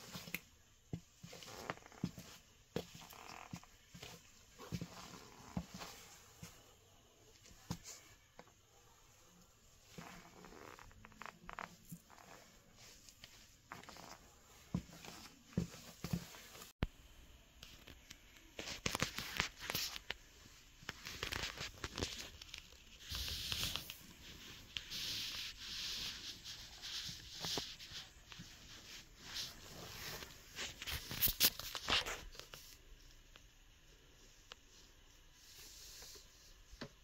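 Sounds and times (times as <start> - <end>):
shoes scuffing and tapping on floor: 0.0 - 6.7, 13.8 - 16.7.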